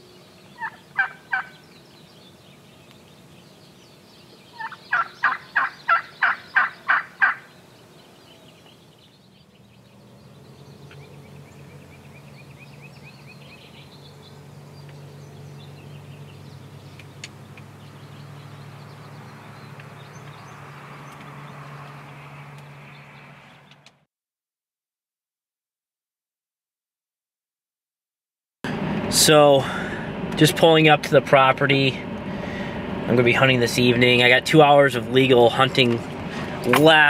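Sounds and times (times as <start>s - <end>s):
turkey gobbling: 0.6s - 1.6s, 4.5s - 7.5s.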